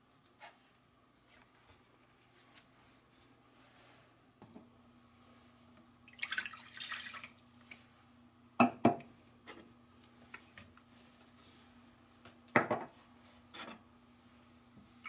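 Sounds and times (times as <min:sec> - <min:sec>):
water pouring into pot: 0:06.0 - 0:07.8.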